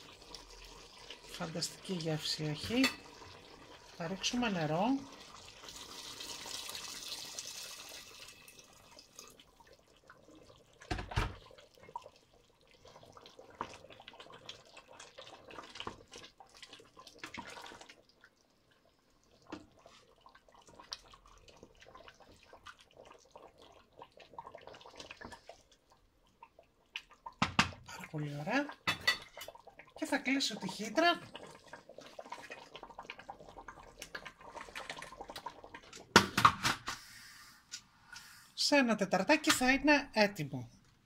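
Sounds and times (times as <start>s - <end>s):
water pouring into a pot: 0.0s - 36.5s
wooden spoon stirring metal pot: 13.2s - 18.0s.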